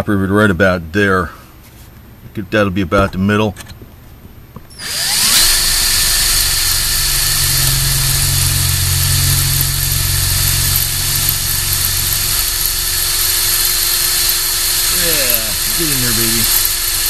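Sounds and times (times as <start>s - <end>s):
power drill boring through metal: 4.7s - 17.0s.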